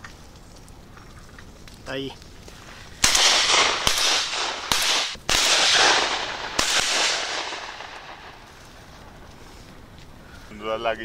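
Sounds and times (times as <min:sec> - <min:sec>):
shotgun shots echoing: 0:03.0 - 0:08.9.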